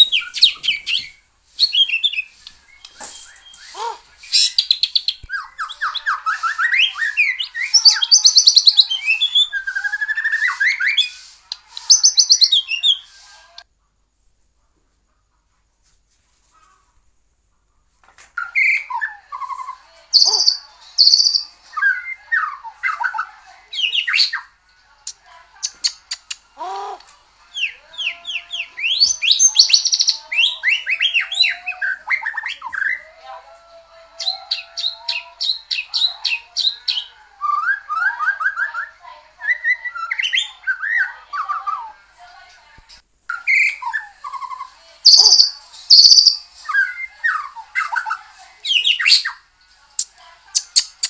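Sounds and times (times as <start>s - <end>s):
bird singing whistled phrases: 20.2s - 22.0s, 45.1s - 47.0s.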